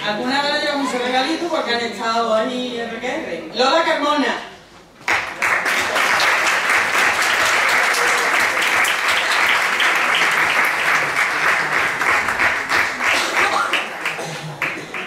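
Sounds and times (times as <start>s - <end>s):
audience applauding: 5.0s - 15.0s.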